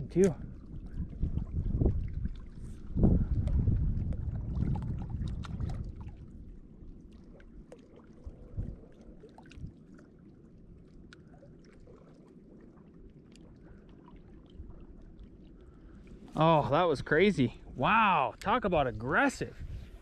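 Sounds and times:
wind rumbling on microphone: 0.0 - 7.6, 8.2 - 9.9, 14.3 - 20.0
waves lapping against rocks: 0.0 - 20.0.

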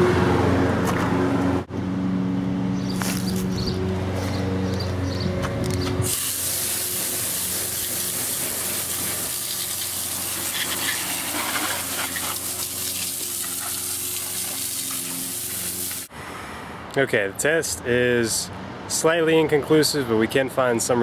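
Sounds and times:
hose water spraying: 6.0 - 16.1.

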